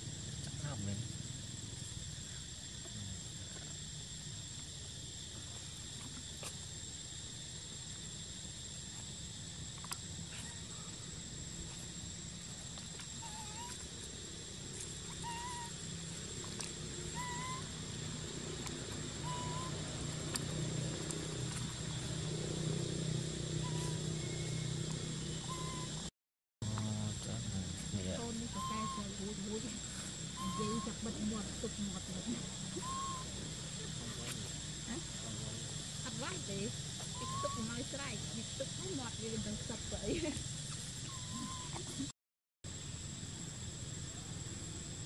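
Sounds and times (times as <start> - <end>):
high insect buzz: 0.0 - 42.1
bird whistling: 17.1 - 17.7, 19.2 - 19.8, 23.6 - 24.7, 25.4 - 26.0, 28.5 - 29.2, 30.4 - 31.0, 32.7 - 33.3, 37.2 - 37.7, 41.0 - 41.8.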